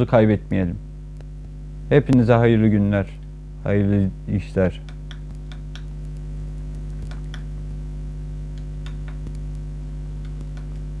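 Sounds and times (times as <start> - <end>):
electrical mains hum: 0.0 - 11.0
faint irregular clicks: 0.5 - 2.2, 4.8 - 7.6, 8.5 - 11.0.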